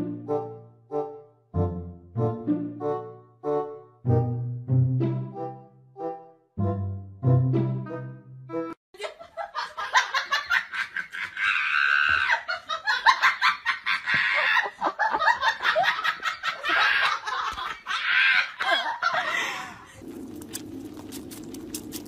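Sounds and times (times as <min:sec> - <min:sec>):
person laughing hard: 0:09.0 - 0:20.0.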